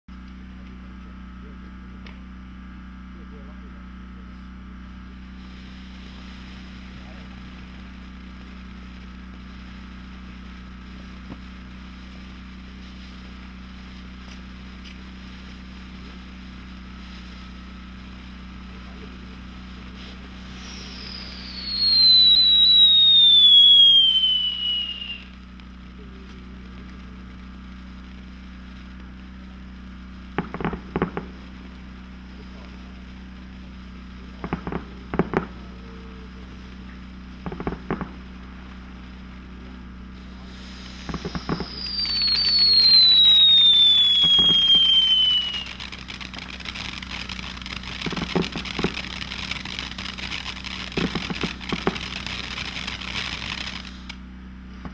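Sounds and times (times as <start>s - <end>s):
firework burning with low hiss: 0.1s - 54.9s
crackling pops: 5.5s - 54.9s
firework whistle falling in pitch: 20.4s - 25.4s, 40.6s - 46.0s.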